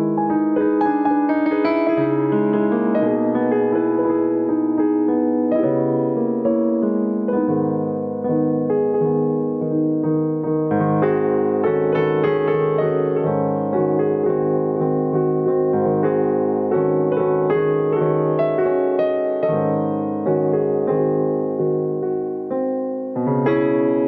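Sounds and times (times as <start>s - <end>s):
solo piano playing: 0.0s - 24.0s.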